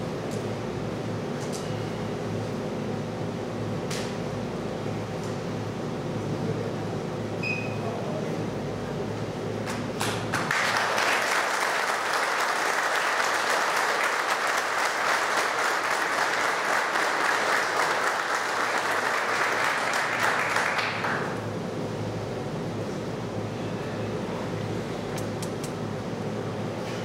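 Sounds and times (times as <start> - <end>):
audience applauding: 10.0 - 21.4.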